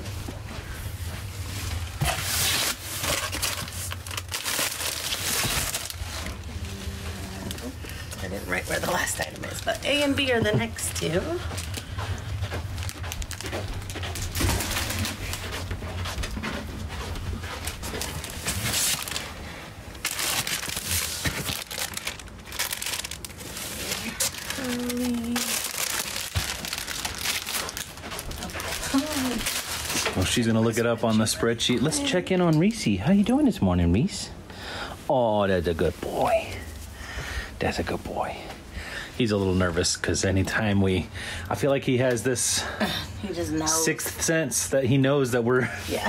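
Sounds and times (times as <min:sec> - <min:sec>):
rummaging through clothes: 0:00.0 - 0:32.2
plastic bags crinkling: 0:02.0 - 0:15.8, 0:17.6 - 0:32.3.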